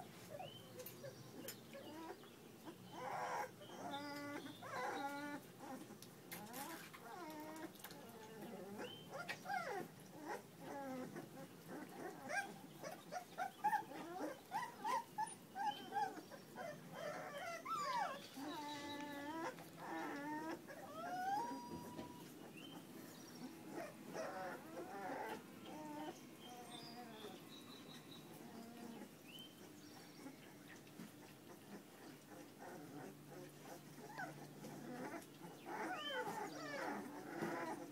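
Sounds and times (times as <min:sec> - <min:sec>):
puppies whimpering and yipping: 0:00.0 - 0:37.9.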